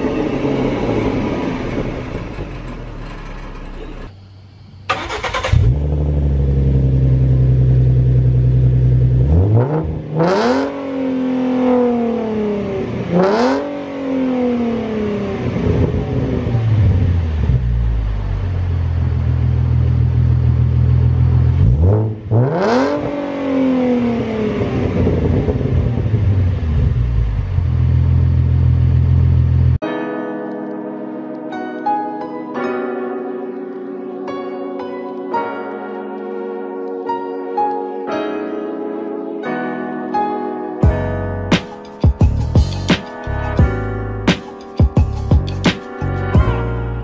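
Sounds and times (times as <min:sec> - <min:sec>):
car engine idling and revving: 0:00.0 - 0:04.1, 0:05.0 - 0:29.8, 0:42.2 - 0:44.3.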